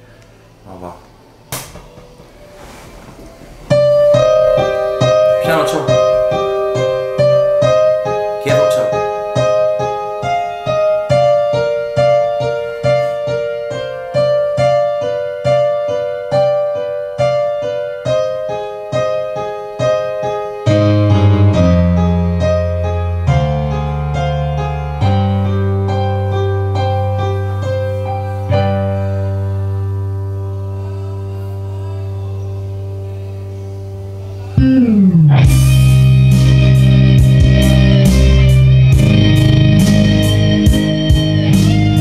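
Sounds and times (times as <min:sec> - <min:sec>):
piano melody: 0:01.6 - 0:42.0
deep held bass notes: 0:03.4 - 0:12.2, 0:20.7 - 0:31.4, 0:32.2 - 0:42.0.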